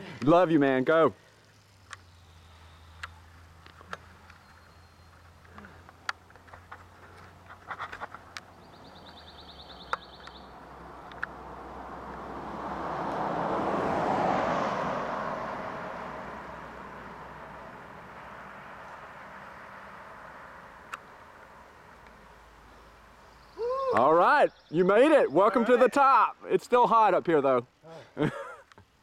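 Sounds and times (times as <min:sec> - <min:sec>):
car passing: 0:08.4 - 0:23.6.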